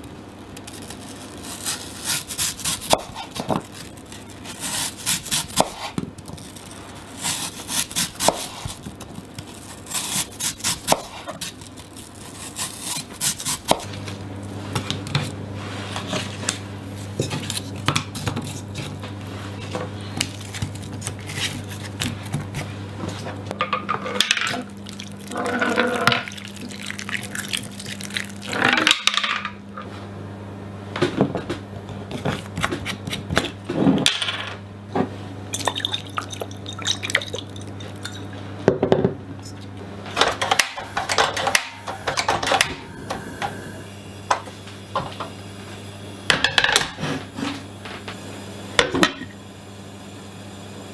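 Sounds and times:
low steady hum: 0:00.0 - 0:50.9
knife cutting apple on wooden board: 0:04.4 - 0:06.0, 0:07.2 - 0:08.9, 0:09.9 - 0:11.7.

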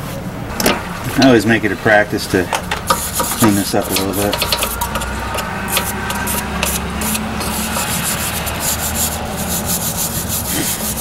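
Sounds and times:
wire brush scrubbing metal: 0:02.7 - 0:11.0.

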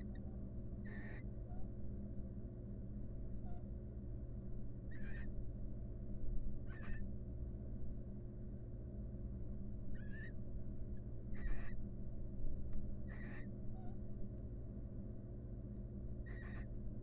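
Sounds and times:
barn owls rasping calls: 0:00.0 - 0:01.7, 0:04.9 - 0:05.4, 0:06.6 - 0:07.1, 0:09.9 - 0:10.4, 0:11.3 - 0:11.8, 0:13.0 - 0:14.0, 0:16.2 - 0:16.7
steady low hum: 0:00.0 - 0:17.0.

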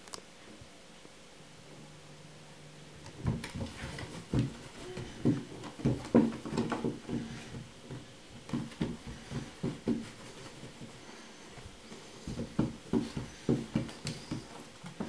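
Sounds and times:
thumps on wooden floor: 0:03.1 - 0:10.9, 0:12.3 - 0:15.0
paws scrabbling on boards: 0:03.1 - 0:11.0, 0:11.6 - 0:15.0.

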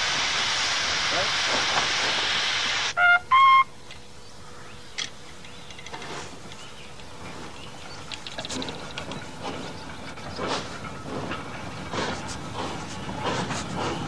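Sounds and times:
steam hissing: 0:00.0 - 0:03.0
faint outdoor sounds: 0:00.0 - 0:14.0
locomotive signal blasts: 0:02.8 - 0:03.8.

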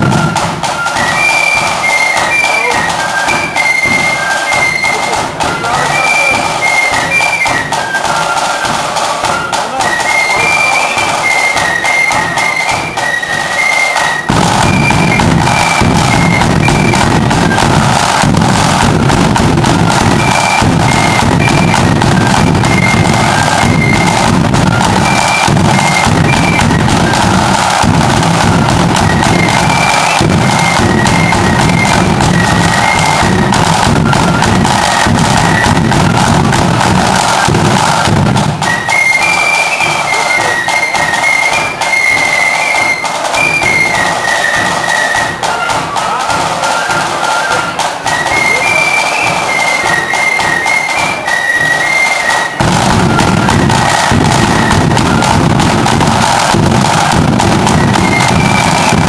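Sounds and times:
bass drum: 0:00.0 - 0:04.3, 0:14.3 - 0:38.9, 0:52.6 - 0:59.0
flutes playing high melody: 0:00.0 - 0:59.0
rattling snare drums: 0:00.0 - 0:59.0.

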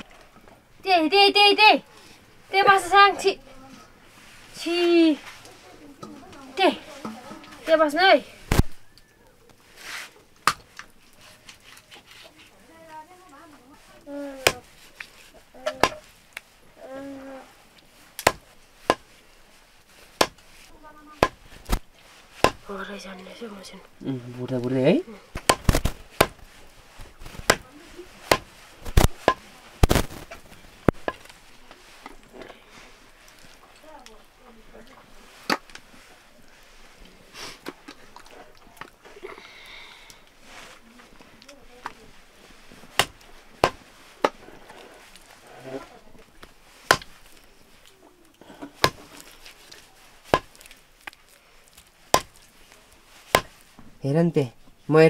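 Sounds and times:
knife chopping on wooden block: 0:15.7 - 0:16.0, 0:28.3 - 0:28.5, 0:43.0 - 0:43.8, 0:46.9 - 0:47.1, 0:48.8 - 0:49.0, 0:50.3 - 0:50.6, 0:52.2 - 0:52.4, 0:53.4 - 0:53.6
knife chopping meat on wood: 0:15.8 - 0:16.0, 0:46.9 - 0:47.1, 0:48.8 - 0:49.0, 0:50.3 - 0:50.6, 0:52.2 - 0:52.4, 0:53.4 - 0:53.6.

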